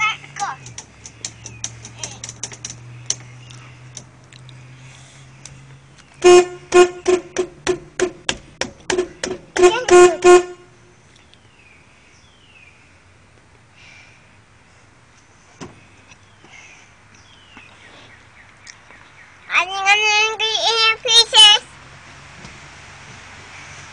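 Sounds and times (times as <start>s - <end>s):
car horn honking: 6.2s - 8.2s, 8.8s - 10.8s.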